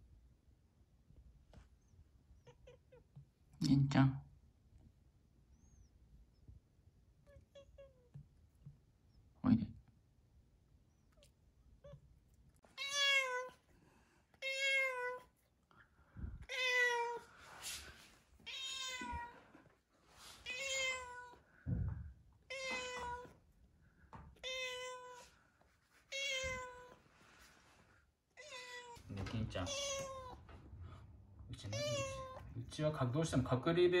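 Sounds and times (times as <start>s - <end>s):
cat meowing: 2.4s - 3.2s, 7.2s - 8.2s, 12.7s - 13.7s, 14.4s - 15.4s, 16.4s - 17.4s, 18.4s - 19.6s, 20.4s - 21.4s, 22.4s - 23.4s, 24.4s - 25.4s, 26.1s - 27.0s, 28.4s - 30.6s, 31.6s - 32.6s.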